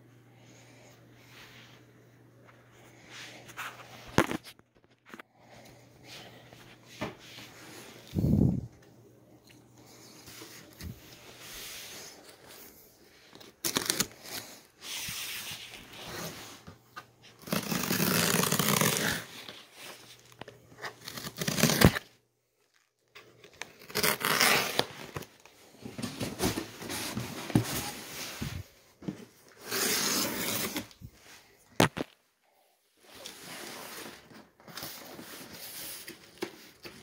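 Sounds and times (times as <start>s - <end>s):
tape and cardboard ripping: 13.6s - 14.5s, 17.4s - 19.6s, 20.8s - 22.1s, 23.6s - 25.3s, 29.6s - 31.0s
cardboard rustling: 22.7s - 32.0s.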